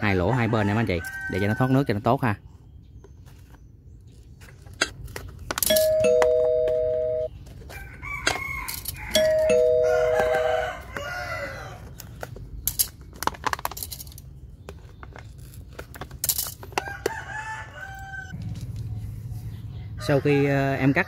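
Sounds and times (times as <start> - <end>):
two-tone doorbell chime: 5.7 - 7.3, 9.2 - 10.5
rooster crowing: 7.7 - 11.9, 16.8 - 18.4.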